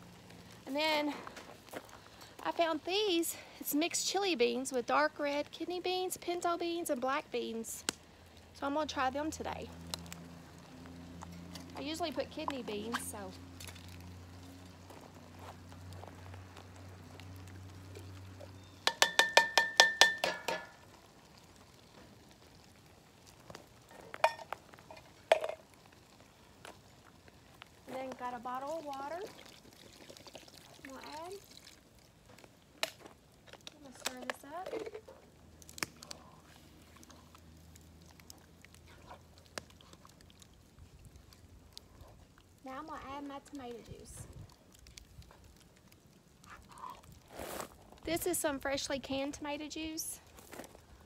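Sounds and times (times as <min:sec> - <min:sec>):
wooden spoon knocking in pot: 0:18.8 - 0:20.7.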